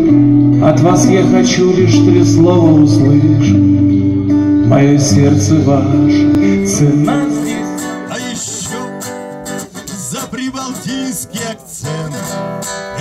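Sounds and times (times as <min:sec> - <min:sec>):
acoustic guitar playing: 0:00.0 - 0:13.0.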